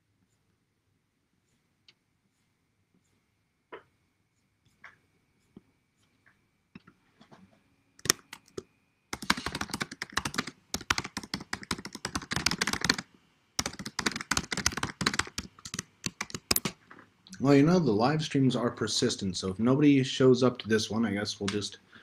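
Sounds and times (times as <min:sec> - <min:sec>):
typing on keyboard: 0:08.0 - 0:13.0, 0:13.6 - 0:16.8.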